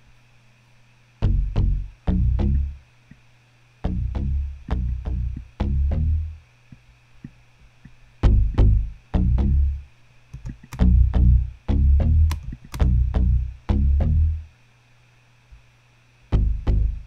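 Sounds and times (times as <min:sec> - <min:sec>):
plucked bass notes: 0:01.2 - 0:02.8, 0:03.8 - 0:06.4, 0:08.2 - 0:09.8, 0:10.7 - 0:14.5, 0:16.3 - 0:17.0.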